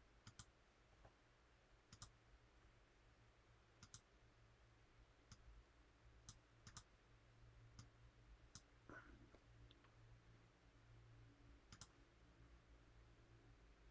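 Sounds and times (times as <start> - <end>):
faint low hum: 0.0 - 13.9
computer mouse clicks: 0.2 - 0.6, 1.9 - 2.2, 3.8 - 4.1, 5.3 - 5.5, 6.2 - 6.9, 8.5 - 8.7, 11.7 - 12.0.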